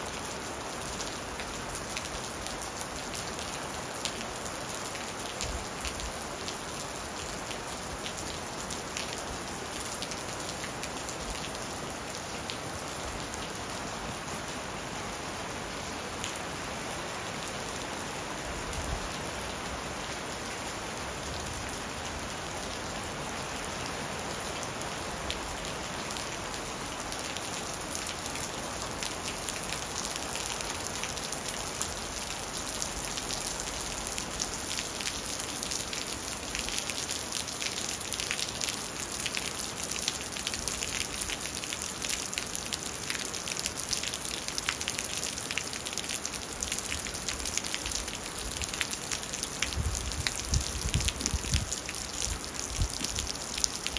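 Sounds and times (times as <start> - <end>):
raindrops hitting a surface: 0.0 - 53.9
steady rain hissing: 0.0 - 53.9.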